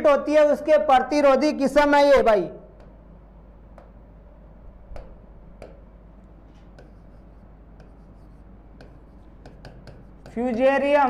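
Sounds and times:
low steady hum: 0:00.0 - 0:11.0
marker scratching on whiteboard: 0:06.5 - 0:11.0.

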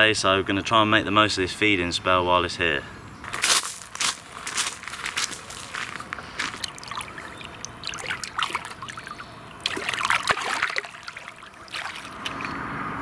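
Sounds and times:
water splashing and trickling: 0:03.3 - 0:12.6.

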